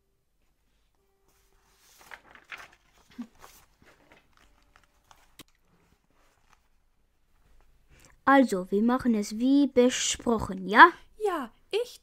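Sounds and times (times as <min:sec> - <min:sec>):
rustling and handling noises: 0:00.4 - 0:08.2.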